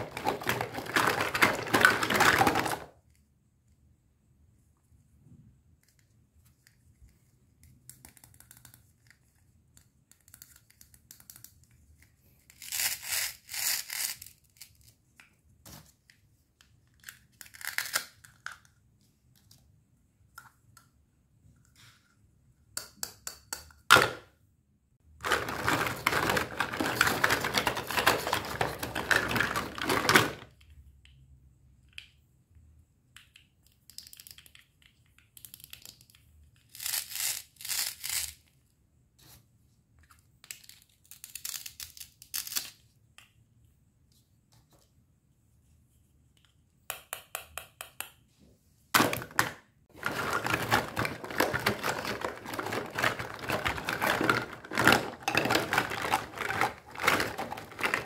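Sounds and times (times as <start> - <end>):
plastic pieces rustling and scraping: 0.0 - 2.9, 25.2 - 30.5, 49.0 - 58.0.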